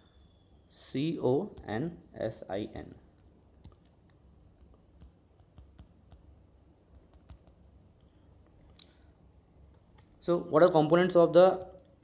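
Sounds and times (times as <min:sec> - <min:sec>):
stylus tapping on tablet screen: 0:01.5 - 0:01.8, 0:02.7 - 0:08.6.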